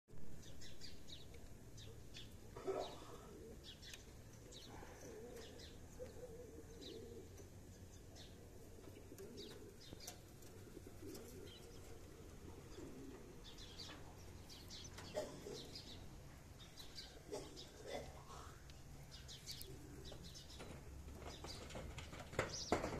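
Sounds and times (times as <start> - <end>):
birds chirping: 0.2 - 22.9
bird cooing: 1.8 - 16.1, 16.8 - 20.7.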